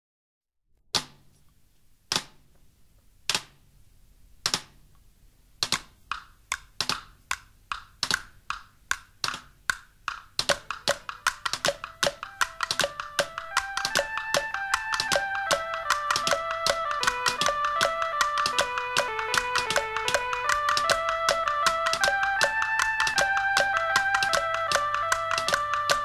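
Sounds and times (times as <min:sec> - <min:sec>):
wood blocks knocking: 0:05.6 - 0:26.0
higher-pitched wood block: 0:10.5 - 0:26.0
pitched instrument notes: 0:10.5 - 0:26.0.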